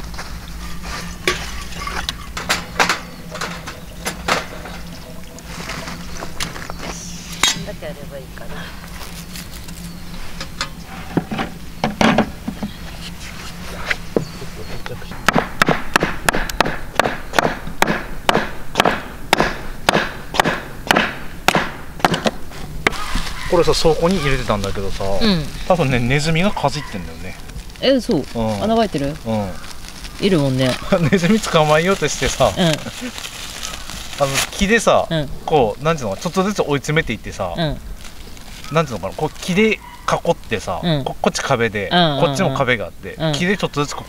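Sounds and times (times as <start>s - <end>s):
steady low hum: 0.0s - 44.0s
metal cookware clinking: 1.2s - 4.8s
hatchet chopping wood: 15.3s - 23.0s.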